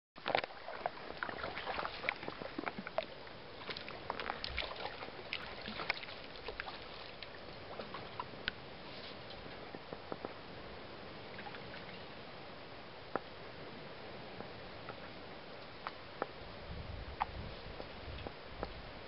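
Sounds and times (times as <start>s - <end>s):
small water splashes: 0.2s - 8.4s
small ripples lapping: 0.2s - 8.6s.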